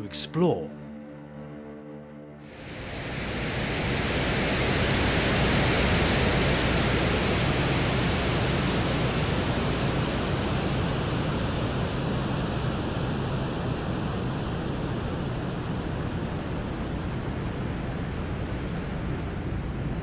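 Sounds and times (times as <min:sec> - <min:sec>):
wind noise hiss: 0:02.6 - 0:12.7.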